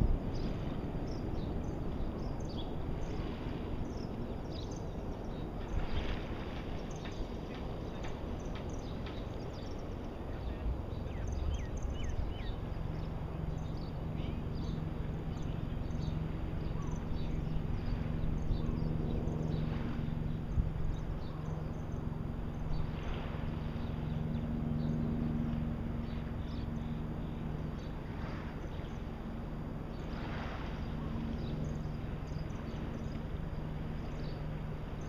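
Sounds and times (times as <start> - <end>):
faint low hum: 0.0 - 35.0
wind and shallow water: 0.0 - 35.0
small birds chirping: 0.3 - 23.1, 29.9 - 35.0.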